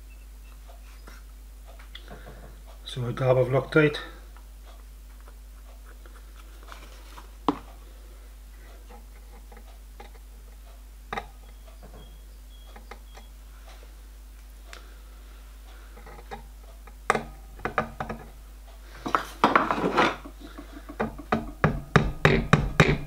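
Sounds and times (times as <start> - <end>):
faint steady hum: 0.0 - 23.0
small metallic clicks and taps: 8.9 - 12.0.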